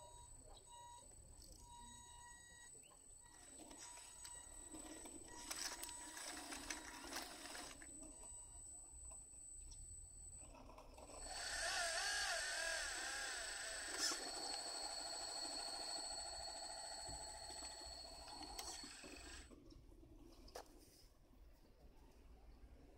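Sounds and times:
electric motors and hydraulic pump: 0:03.3 - 0:08.3, 0:09.0 - 0:19.6
wavering motor whine: 0:11.0 - 0:19.5.

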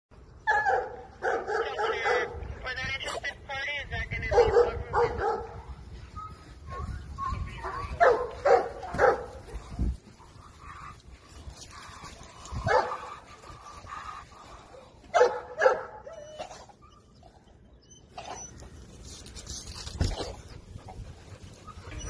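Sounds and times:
dogs barking: 0:00.4 - 0:02.5, 0:04.2 - 0:05.8, 0:06.7 - 0:16.8.

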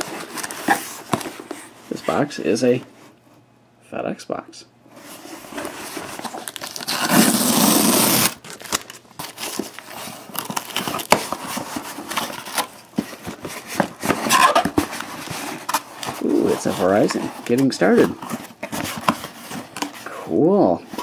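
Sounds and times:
cardboard flaps rustling and scraping: 0:00.0 - 0:03.0, 0:05.0 - 0:21.0
cardboard tearing: 0:05.6 - 0:20.0.

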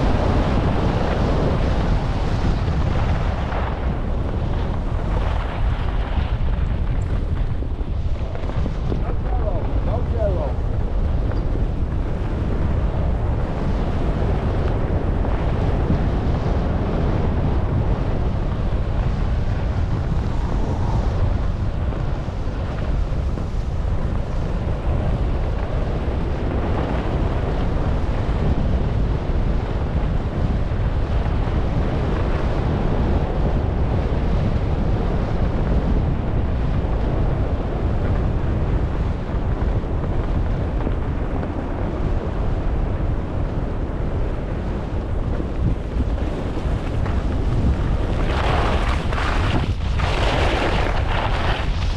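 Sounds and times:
wind buffeting microphone: 0:00.0 - 0:51.9
skis scraping on packed snow: 0:44.3 - 0:51.9.

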